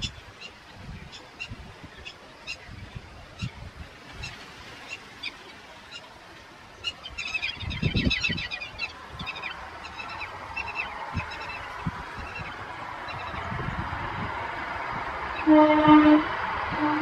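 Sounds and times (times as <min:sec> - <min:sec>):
birds calling: 0:06.7 - 0:13.6.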